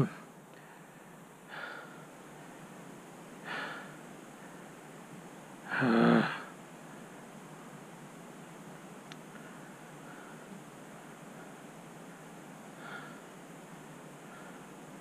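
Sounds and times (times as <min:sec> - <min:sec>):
faint steady hiss: 0:00.0 - 0:15.0
man breathing out heavily: 0:00.6 - 0:02.1, 0:03.4 - 0:04.6, 0:12.8 - 0:13.3
man sighing: 0:05.7 - 0:06.5.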